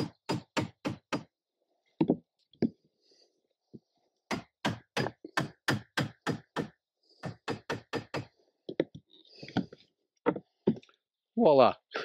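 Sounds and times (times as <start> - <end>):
hammer striking wooden block: 0.0 - 1.3, 4.3 - 8.3.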